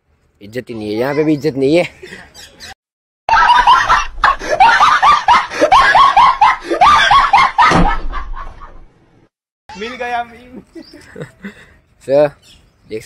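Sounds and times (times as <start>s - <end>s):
shrill laugh-like cries: 0.8s - 8.7s.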